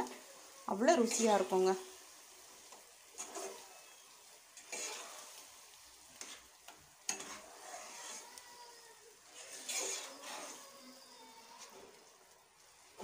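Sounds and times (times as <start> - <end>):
light sizzle: 0.0 - 13.0
ladle scraping a pan: 2.6 - 12.2.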